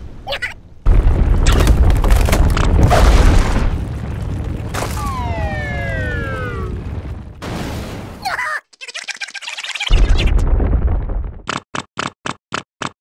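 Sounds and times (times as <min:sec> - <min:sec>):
deep earthquake rumble: 0:00.8 - 0:07.5, 0:10.0 - 0:11.5
crashes: 0:00.9 - 0:08.2
tone gliding downward: 0:05.0 - 0:06.9.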